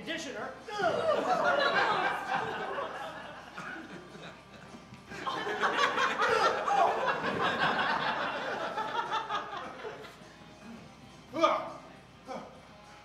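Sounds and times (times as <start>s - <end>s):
audience laughing: 0.9s - 10.2s.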